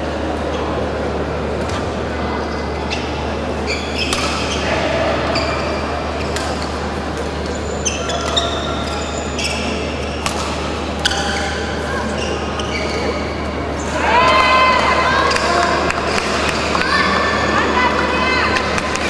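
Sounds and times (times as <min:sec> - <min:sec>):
shoes squeaking on court: 0:02.5 - 0:06.8, 0:07.4 - 0:10.3, 0:11.0 - 0:13.9
racket hitting shuttlecock: 0:04.0 - 0:04.5, 0:10.2 - 0:11.3.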